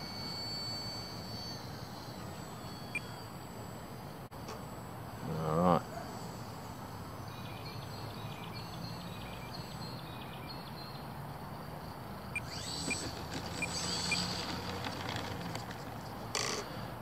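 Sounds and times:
electric motor whine: 0.0 - 10.8, 11.9 - 17.0
outdoor rumble: 12.4 - 17.0.

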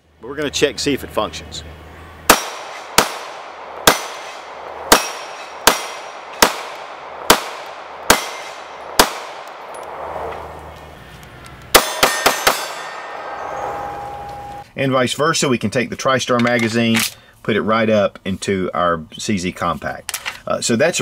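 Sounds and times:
pistol shots with ringing echo: 2.3 - 10.3, 11.7 - 14.3.

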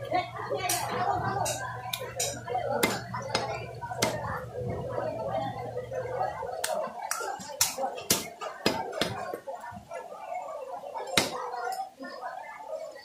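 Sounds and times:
cleaver chopping meat on wood: 2.8 - 4.2, 7.6 - 9.2, 11.2 - 11.4.

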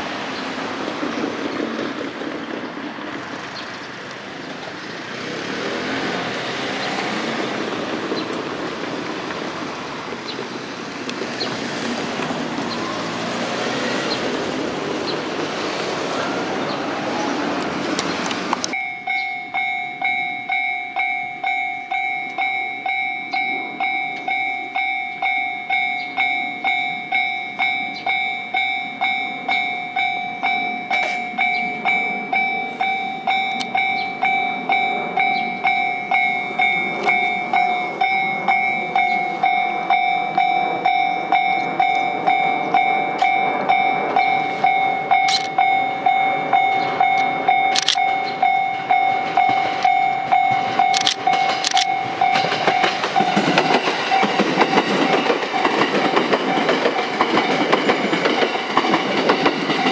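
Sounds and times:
electric train running noise: 0.0 - 59.9
level crossing alarm bell: 18.7 - 57.8
steady ringing tone: 18.8 - 58.4.

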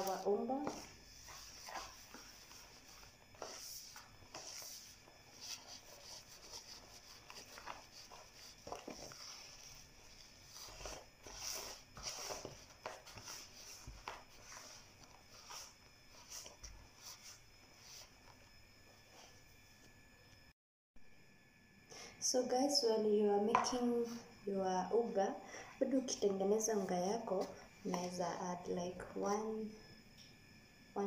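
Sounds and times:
hands kneading dough: 0.0 - 18.5.

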